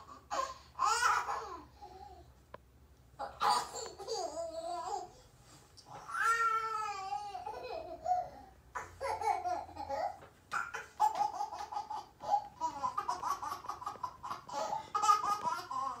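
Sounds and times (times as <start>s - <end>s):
baby laughing through tv speakers: 0.0s - 2.0s, 6.8s - 16.0s.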